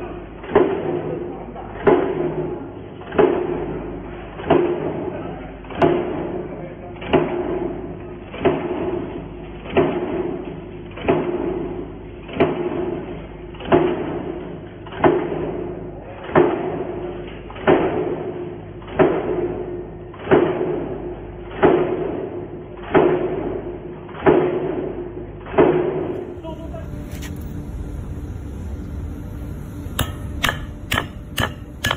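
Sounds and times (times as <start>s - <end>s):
press hum: 26.0s - 31.9s
stamping press thud with ringing: 29.9s - 31.9s.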